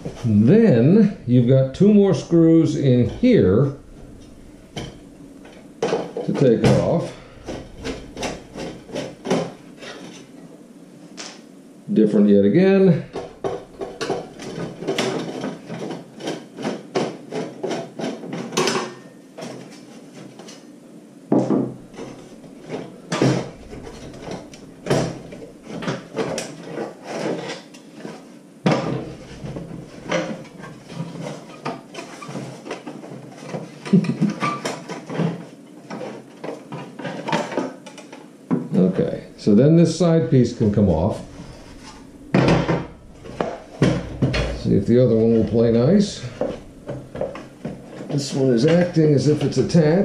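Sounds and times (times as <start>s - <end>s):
heater housing knocks: 0.0s - 9.8s, 13.0s - 15.4s, 21.3s - 26.5s, 41.0s - 48.0s.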